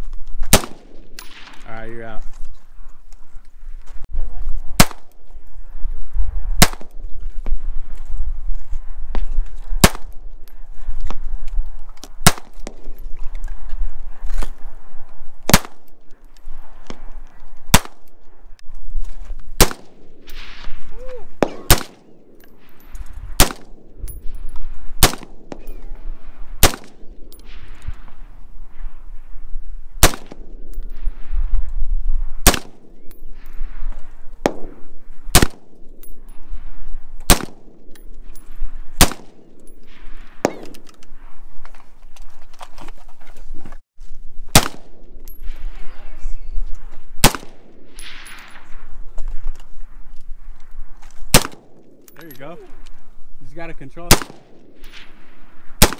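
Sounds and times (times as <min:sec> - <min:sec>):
rifle shots with echo: 0:00.5 - 0:01.6, 0:04.8 - 0:05.2, 0:06.5 - 0:07.0, 0:09.8 - 0:10.2, 0:12.2 - 0:12.8, 0:15.5 - 0:16.0, 0:17.7 - 0:18.3, 0:19.6 - 0:20.8, 0:21.4 - 0:22.4, 0:23.4 - 0:23.9, 0:25.0 - 0:25.7, 0:26.6 - 0:27.7, 0:30.0 - 0:30.7, 0:32.4 - 0:33.1, 0:34.4 - 0:35.8, 0:37.3 - 0:37.8, 0:39.0 - 0:39.5, 0:40.4 - 0:40.9, 0:44.5 - 0:45.5, 0:47.2 - 0:48.4, 0:51.3 - 0:52.0, 0:54.1 - 0:55.9
faint distant gunshots: 0:21.4 - 0:22.2.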